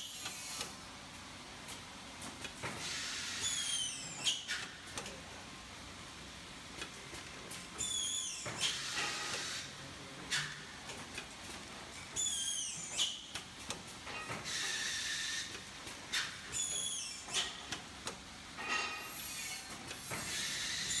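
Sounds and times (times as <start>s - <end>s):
compressed air hiss: 14.5s - 15.6s.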